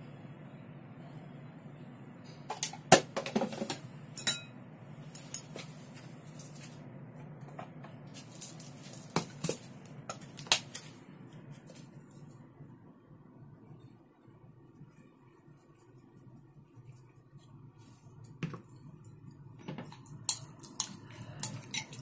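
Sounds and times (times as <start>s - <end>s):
faint low hum: 0.0s - 22.0s
spoon clinking ceramic bowl: 4.2s - 4.6s.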